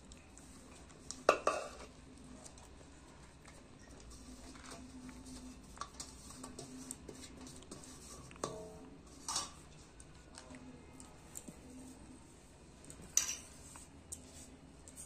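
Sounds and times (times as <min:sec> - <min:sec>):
utensil scraping metal pot: 0:04.0 - 0:09.8.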